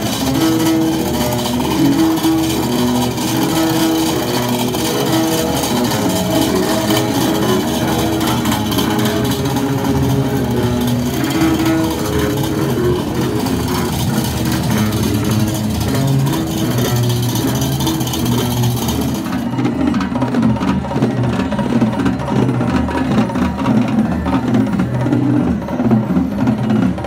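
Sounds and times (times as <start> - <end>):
crowd din: 0.0 - 27.0
passing traffic: 0.0 - 27.0
street music held melodic notes: 0.0 - 27.0.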